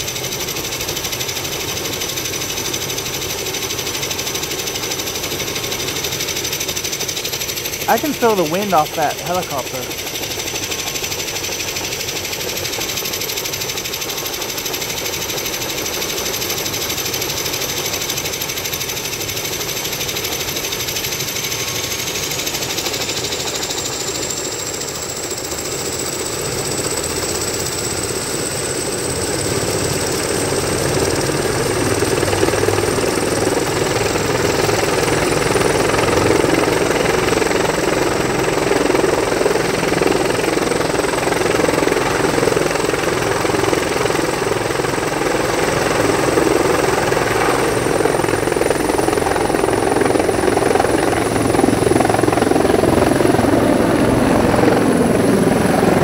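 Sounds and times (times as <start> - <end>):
helicopter turbine whine: 0.0 - 56.0
helicopter rotor chop: 28.8 - 56.0.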